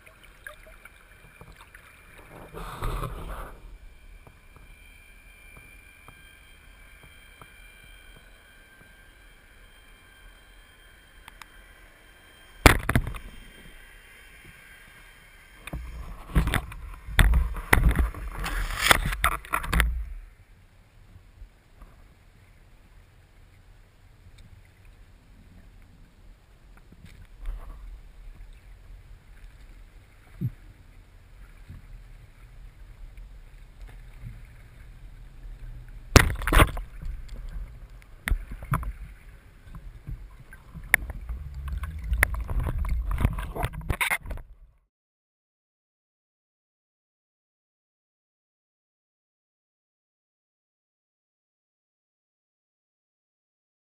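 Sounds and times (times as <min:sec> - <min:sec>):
underwater rush of water: 0:00.0 - 0:08.5, 0:27.3 - 0:44.4
underwater knocks and clatters: 0:15.7 - 0:20.1, 0:36.1 - 0:44.6.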